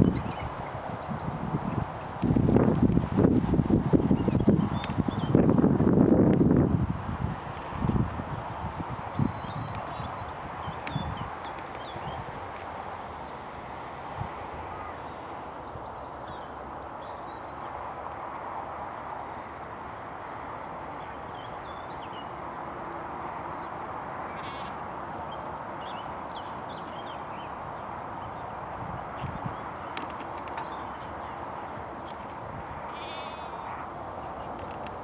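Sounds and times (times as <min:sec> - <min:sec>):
bird chirps and calls: 0:00.0 - 0:01.1
distant road traffic: 0:00.0 - 0:35.0.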